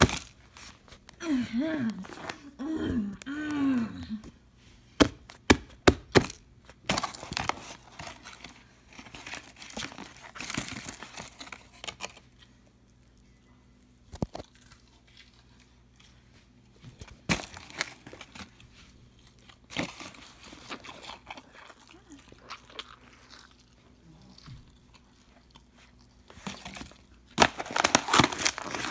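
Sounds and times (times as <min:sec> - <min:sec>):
paper and cardboard rustling: 0:06.9 - 0:12.3.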